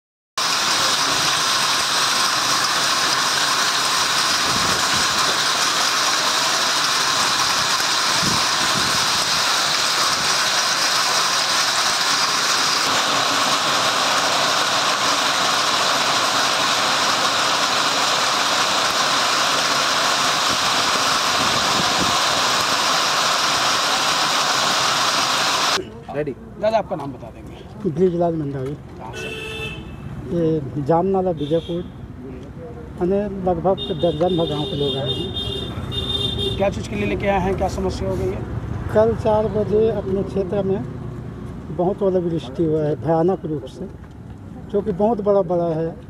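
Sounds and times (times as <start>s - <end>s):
heavy rain and hail: 0.4s - 25.8s.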